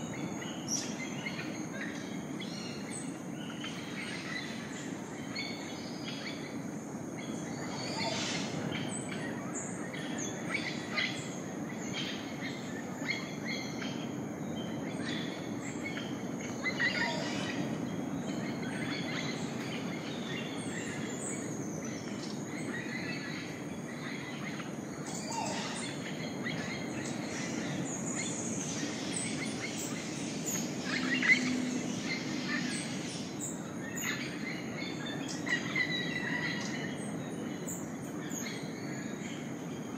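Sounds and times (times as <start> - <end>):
low background noise: 0.0 - 39.9
bird chirps and calls: 15.0 - 38.8.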